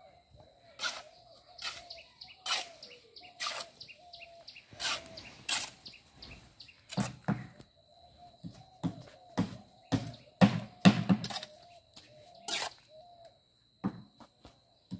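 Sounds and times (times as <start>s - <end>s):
birds chirping: 0.0s - 13.4s
trowel scraping metal pan: 4.8s - 5.8s, 12.5s - 12.8s.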